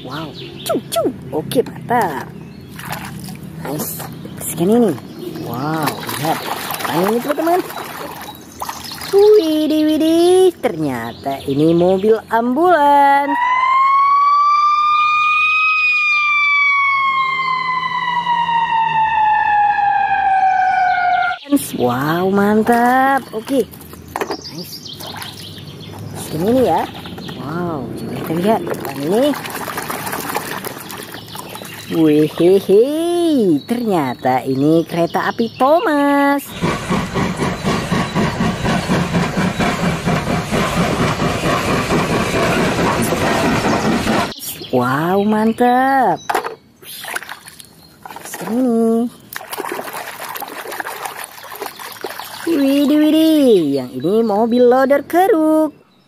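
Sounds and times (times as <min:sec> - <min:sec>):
ambulance siren wailing: 0:13.2 - 0:21.4
steam locomotive chugging: 0:36.4 - 0:44.6.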